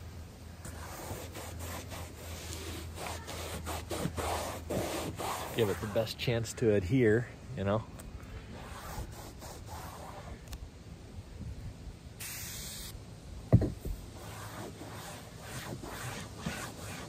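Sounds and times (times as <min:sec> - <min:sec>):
rag rubbing on roof: 0:00.6 - 0:06.2, 0:08.5 - 0:10.4, 0:13.9 - 0:17.0
aerosol can hiss: 0:12.2 - 0:13.0.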